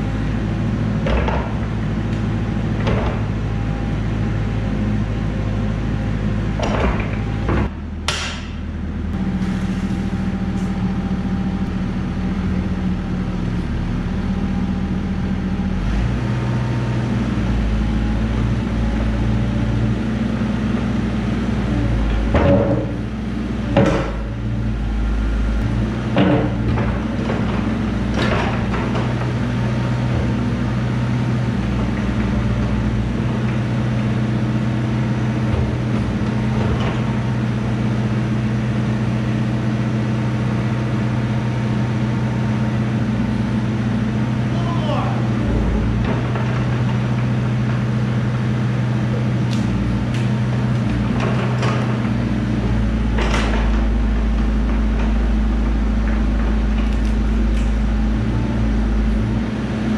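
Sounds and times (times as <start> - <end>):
diesel engine running: 0.0 - 59.9
sharp metallic knocks: 6.6 - 8.6.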